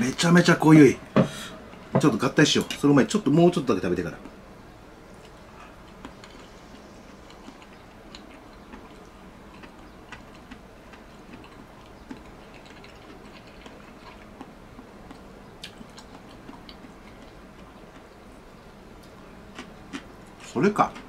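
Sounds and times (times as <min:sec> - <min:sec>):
faint hum: 0:00.0 - 0:21.0
person chewing: 0:05.2 - 0:18.2, 0:19.0 - 0:21.0.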